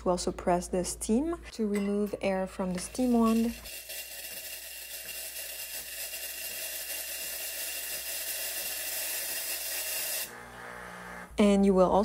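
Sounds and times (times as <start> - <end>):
espresso machine steam wand hissing: 3.3 - 11.3.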